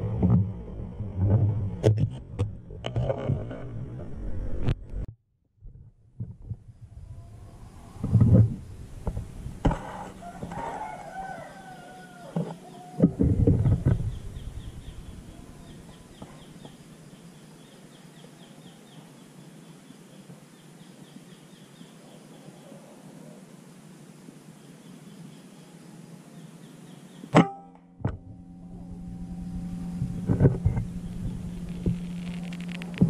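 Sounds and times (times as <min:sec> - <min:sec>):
junglefowl crowing: 0:09.8 - 0:13.2, 0:14.8 - 0:16.6
low rustling and bumping: 0:13.0 - 0:15.3, 0:28.0 - 0:33.0.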